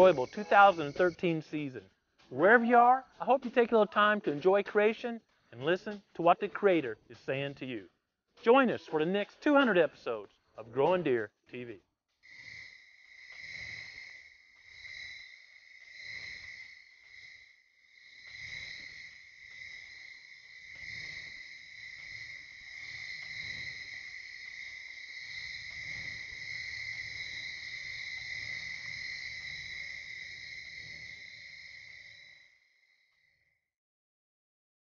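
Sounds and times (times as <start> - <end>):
crickets trilling: 0.0 - 1.7, 12.2 - 33.6.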